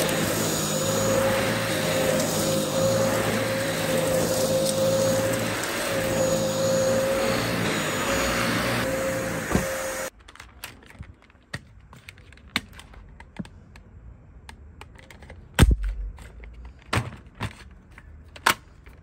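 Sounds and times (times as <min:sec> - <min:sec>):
vacuum cleaner whine: 0:00.0 - 0:10.1
hard plastic parts clicking: 0:10.2 - 0:19.0.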